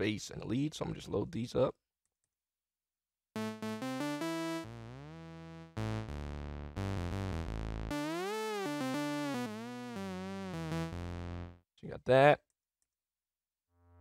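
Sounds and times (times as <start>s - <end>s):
low synth bass line: 3.4s - 11.6s
synthesizer notes: 3.4s - 11.6s.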